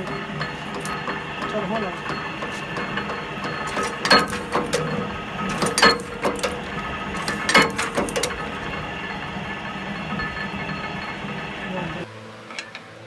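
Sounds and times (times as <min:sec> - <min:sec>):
cutting press strikes: 0:00.0 - 0:11.7
machine humming: 0:00.0 - 0:13.0.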